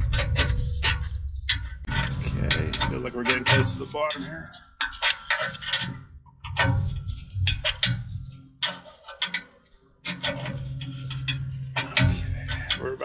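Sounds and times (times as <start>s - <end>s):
low steady hum: 0.0s - 8.7s, 10.2s - 13.0s
ratchet clicking: 0.0s - 9.5s.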